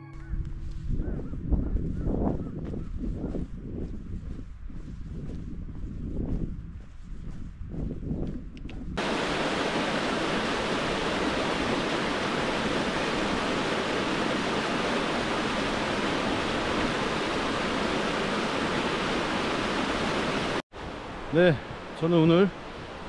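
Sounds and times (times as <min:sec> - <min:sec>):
stream rushing over rocks: 0:09.0 - 0:23.0.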